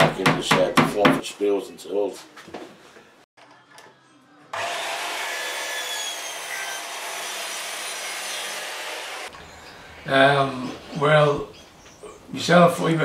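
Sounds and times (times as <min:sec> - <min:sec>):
mitre saw cutting wood: 0:04.6 - 0:09.3.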